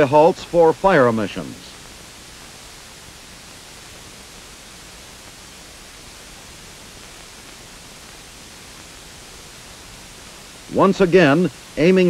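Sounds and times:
film soundtrack hiss: 0.0 - 12.0.

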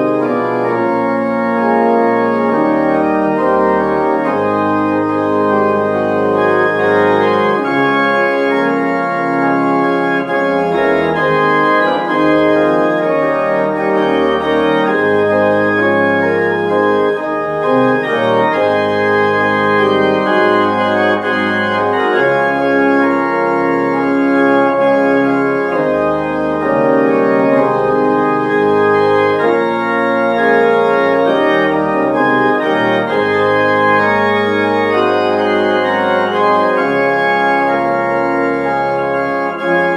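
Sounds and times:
organ playing sustained chords: 0.0 - 39.9.

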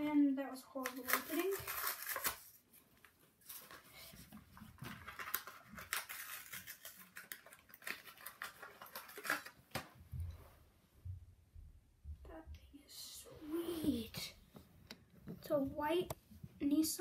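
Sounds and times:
plastic packaging crackling: 0.8 - 2.6, 4.7 - 9.9.

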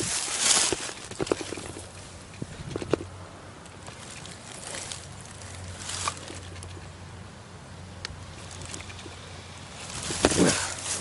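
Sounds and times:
dry leaves rustling and crunching: 0.0 - 2.2, 3.8 - 6.8, 8.3 - 11.0.

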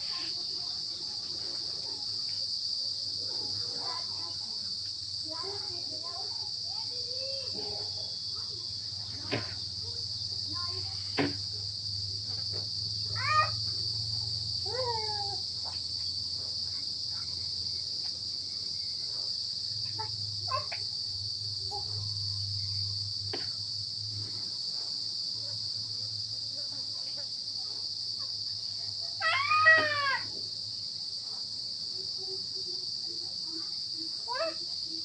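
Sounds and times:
insects chirring: 0.0 - 35.0.

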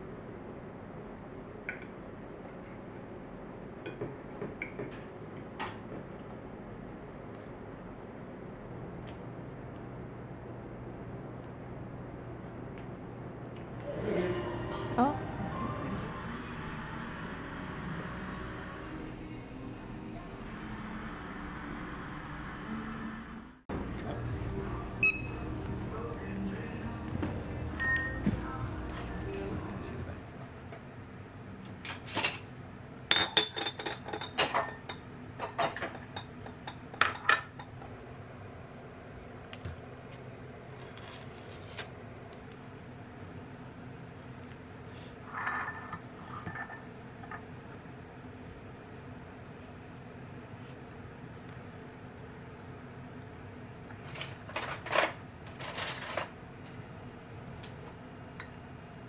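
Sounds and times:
low room hum: 0.0 - 59.0
cutlery scraping on a plate: 45.3 - 47.4
cutlery and dishes clinking: 54.0 - 56.3.

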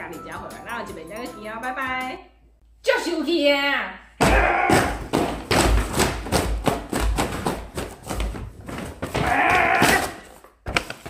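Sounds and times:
heavy thumps: 4.2 - 10.3
cardboard boxes crushed underfoot: 4.4 - 11.0.

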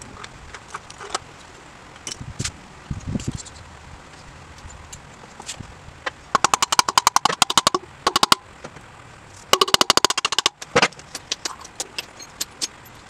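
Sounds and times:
loose ticks: 6.0 - 8.4, 9.4 - 13.0
ratchet wrench clicking: 6.4 - 8.4.

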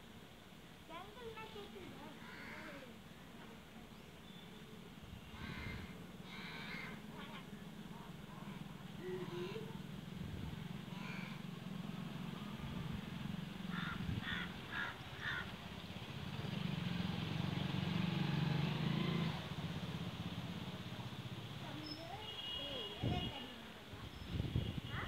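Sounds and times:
crow cawing: 2.2 - 2.8, 5.4 - 7.2, 10.9 - 11.5, 13.7 - 15.5.

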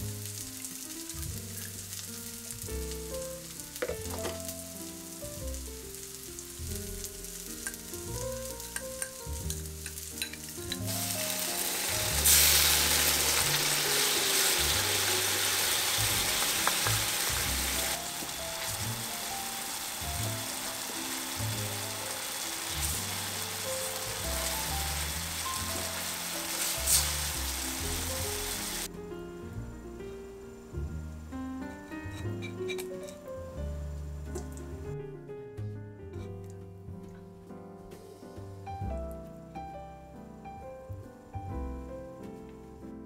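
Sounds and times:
food sizzling in a pan: 0.0 - 28.9, 30.6 - 34.6
background music: 0.0 - 43.0.

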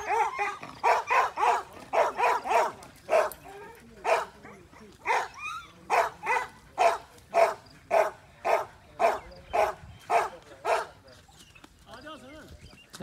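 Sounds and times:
dog barking: 0.0 - 3.4, 4.0 - 11.0.

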